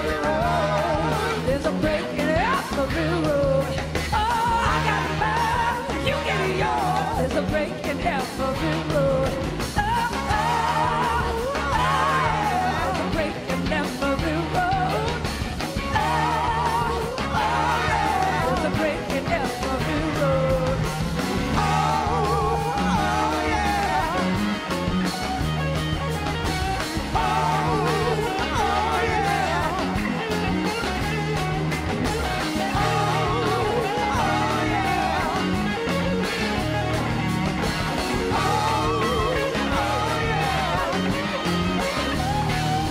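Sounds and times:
woman singing: 0:00.0 - 0:20.9, 0:32.4 - 0:35.8
blues-rock band playing: 0:00.0 - 0:42.9.

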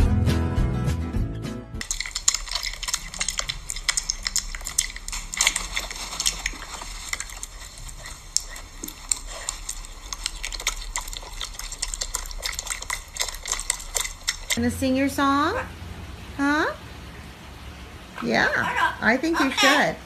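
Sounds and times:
piglet smacking its mouth: 0:01.8 - 0:14.6.

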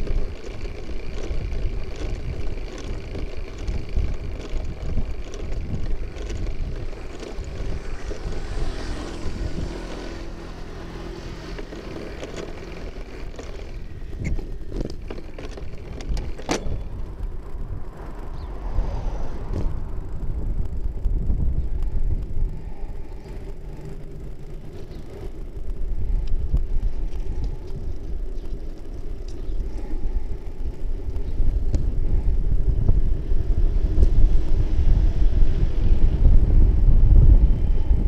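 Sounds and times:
bicycle road rumble: 0:00.0 - 0:38.0
wind on microphone: 0:00.0 - 0:38.0
vehicle engine passing: 0:06.3 - 0:14.1, 0:16.8 - 0:20.9.

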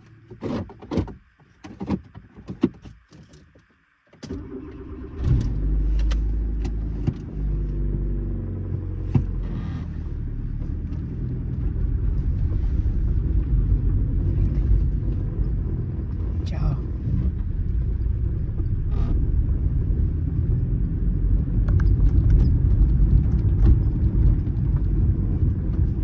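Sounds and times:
car engine starting and revving: 0:04.2 - 0:26.0.

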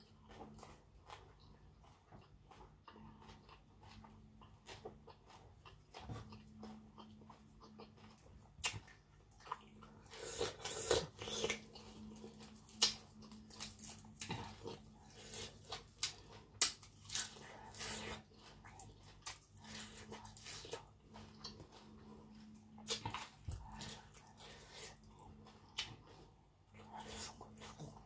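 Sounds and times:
person chewing food: 0:00.0 - 0:28.0.

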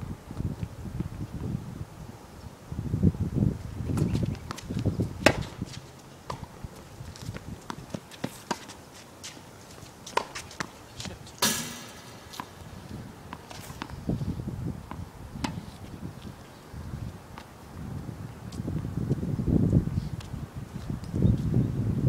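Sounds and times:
tennis ball bouncing on hard court: 0:04.0 - 0:06.5, 0:10.0 - 0:14.0.

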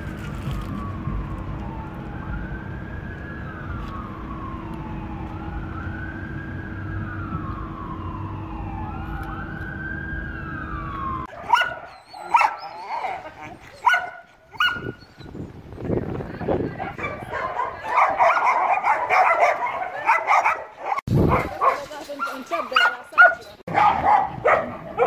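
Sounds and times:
low hum and rumble: 0:00.0 - 0:11.3
distant siren wailing: 0:00.0 - 0:21.1
dog yipping: 0:11.3 - 0:15.4, 0:16.8 - 0:25.0.

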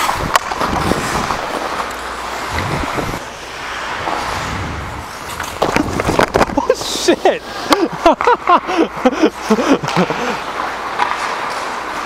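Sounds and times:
ice skates scraping: 0:00.0 - 0:12.0
wind on microphone: 0:00.2 - 0:01.4, 0:02.5 - 0:03.3, 0:04.0 - 0:06.6.

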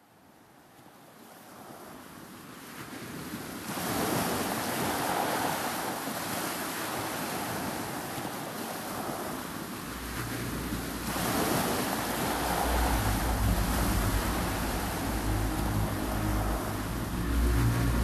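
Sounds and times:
sea surf: 0:01.0 - 0:18.0
wind rushing: 0:09.8 - 0:18.0.

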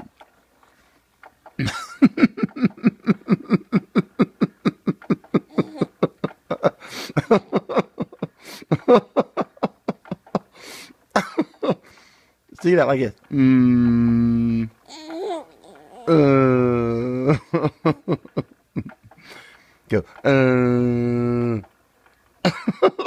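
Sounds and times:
person laughing: 0:01.6 - 0:10.5, 0:11.2 - 0:11.9, 0:14.9 - 0:19.2, 0:22.4 - 0:23.0.

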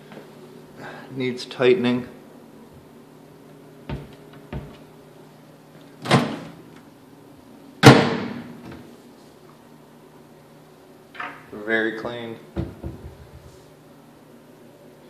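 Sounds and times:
cabinet door banging: 0:03.9 - 0:04.8, 0:12.6 - 0:13.3
knock on cabinet door: 0:03.9 - 0:04.8.

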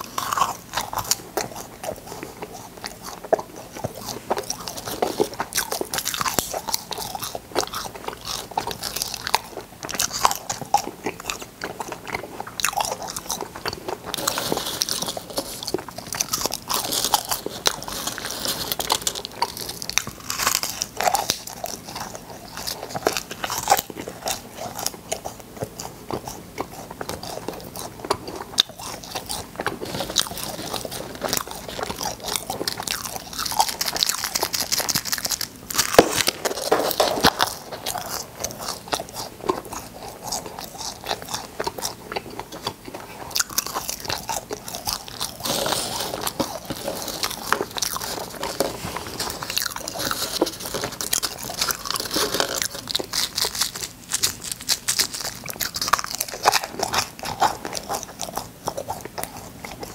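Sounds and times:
crunching and chewing candy: 0:00.0 - 0:59.9.

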